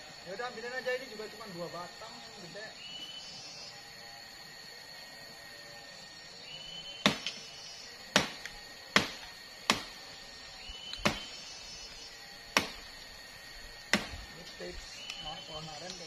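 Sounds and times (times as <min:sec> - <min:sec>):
machete chopping frond stalks: 0:07.0 - 0:07.5, 0:08.1 - 0:10.1, 0:10.9 - 0:13.1, 0:13.8 - 0:15.3.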